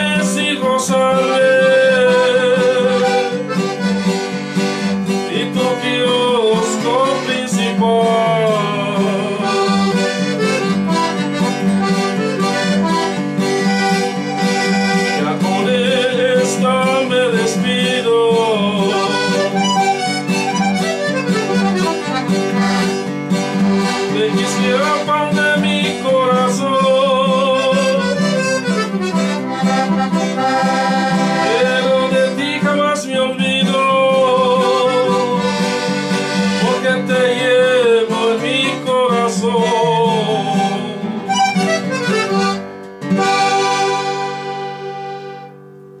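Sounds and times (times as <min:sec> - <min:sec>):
man singing: 0:00.0 - 0:03.7, 0:05.0 - 0:10.9, 0:14.9 - 0:21.8, 0:23.8 - 0:41.9
acoustic guitar: 0:00.0 - 0:46.0
button accordion: 0:00.0 - 0:46.0.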